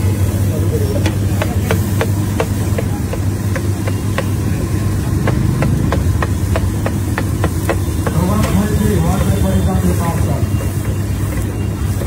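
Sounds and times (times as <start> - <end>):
burner hum and hiss: 0.0 - 12.0
sharp repeating taps: 1.1 - 9.4.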